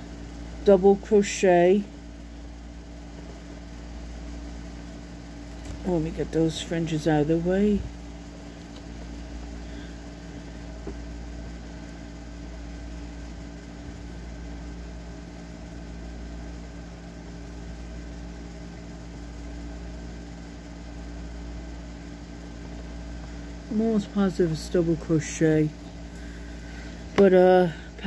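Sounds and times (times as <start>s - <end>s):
appliance humming: 0.0s - 28.0s.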